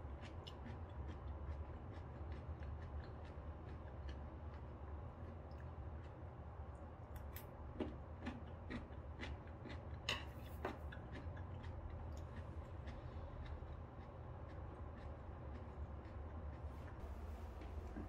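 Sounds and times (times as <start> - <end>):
low steady hum: 0.0 - 18.0.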